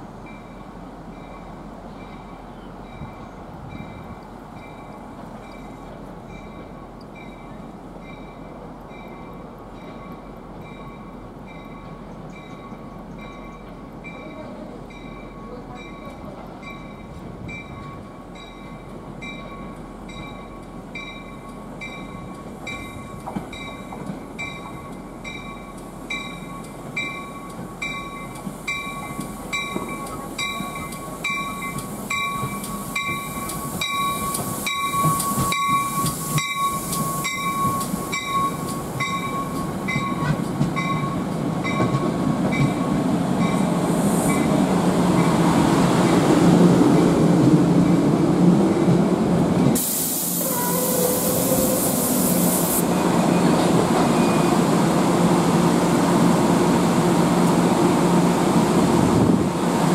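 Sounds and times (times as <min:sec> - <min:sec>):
train rumble: 0:00.0 - 0:59.9
railroad crossing bell ringing: 0:00.2 - 0:44.5.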